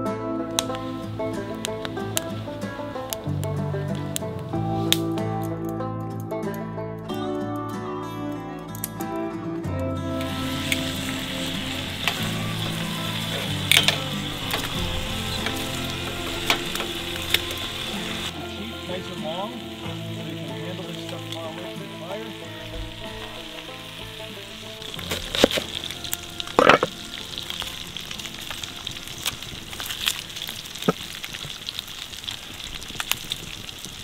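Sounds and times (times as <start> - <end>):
soft background music: 0.0 - 30.6
bacon sizzling in a skillet: 10.1 - 34.0.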